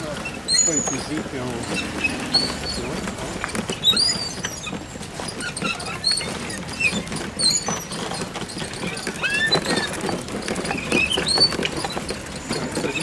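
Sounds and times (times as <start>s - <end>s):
short high squeaks and chirps: 0.0s - 3.0s, 3.7s - 7.9s, 8.8s - 10.0s
traffic low rumble: 0.0s - 13.0s.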